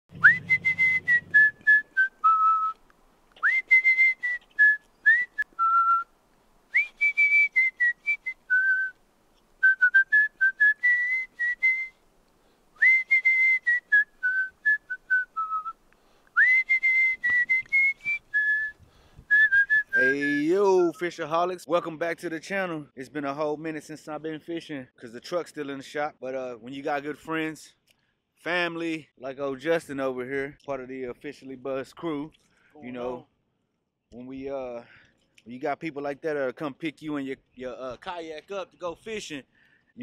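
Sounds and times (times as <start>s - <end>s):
person whistling a tune: 0.2s - 2.8s, 3.4s - 6.1s, 6.7s - 9.0s, 9.6s - 12.0s, 12.8s - 15.8s, 16.4s - 21.1s.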